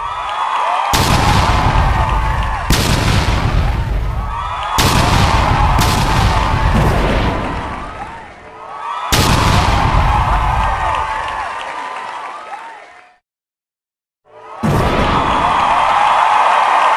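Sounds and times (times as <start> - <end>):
firework bangs: 0.9 - 8.4, 9.1 - 11.4, 14.6 - 16.3
fireworks crackling and whistling: 1.0 - 8.3.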